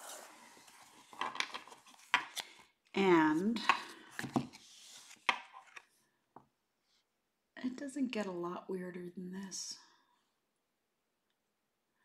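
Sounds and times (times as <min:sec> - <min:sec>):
soft card rustling: 0:00.0 - 0:06.0.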